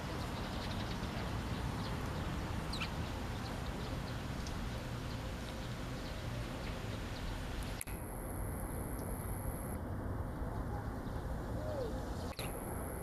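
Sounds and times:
sparrows chirping: 0:00.0 - 0:07.8.

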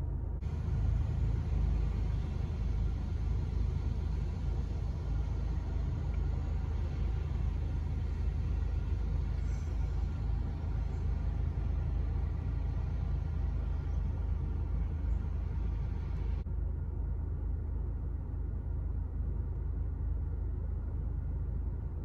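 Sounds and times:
vehicles driving through water: 0:00.4 - 0:16.4.

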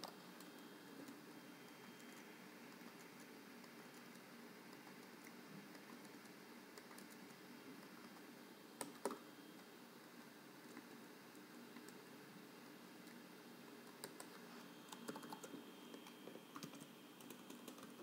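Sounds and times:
computer keyboard keystrokes: 0:04.8 - 0:07.3, 0:13.9 - 0:14.3, 0:14.9 - 0:18.0
loud keyboard clicks: 0:14.9 - 0:15.5.

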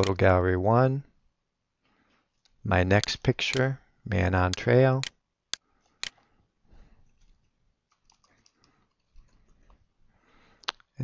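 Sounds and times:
typing on computer keyboard: 0:07.9 - 0:09.5.

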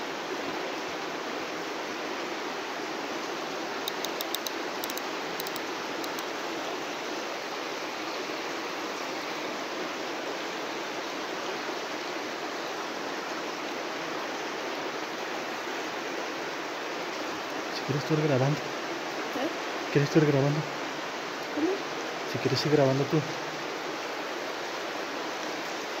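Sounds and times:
faint high clicks: 0:03.8 - 0:06.3.

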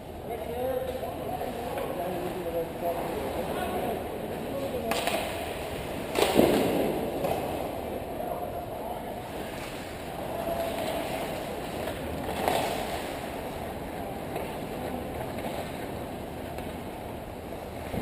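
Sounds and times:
hockey sticks clacking: 0:04.8 - 0:05.4, 0:06.1 - 0:07.5
sharp stick crack: 0:04.9 - 0:05.4
skates scraping ice: 0:09.3 - 0:18.0.

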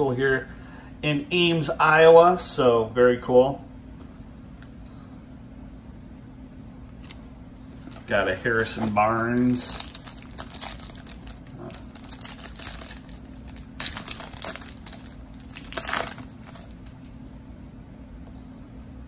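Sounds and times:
foil wrapper crinkling and tearing: 0:07.8 - 0:16.9.

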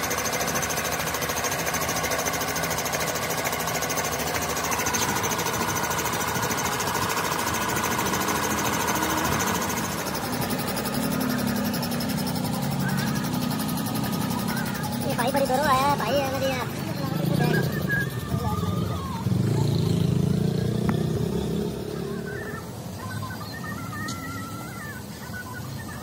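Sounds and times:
engine running with even pulsing: 0:00.0 - 0:26.0.

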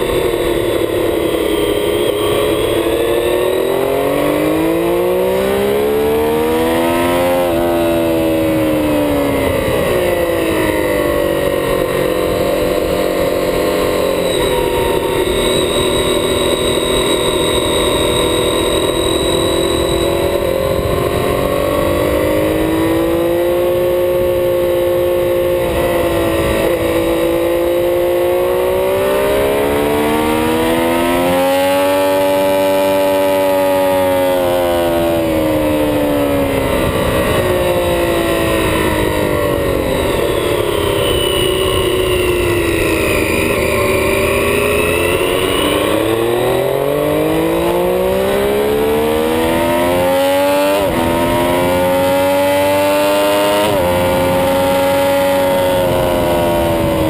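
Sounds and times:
motorcycle engine accelerating: 0:00.0 - 0:57.0
wind rush on microphone: 0:07.7 - 0:27.9, 0:52.2 - 0:57.0.

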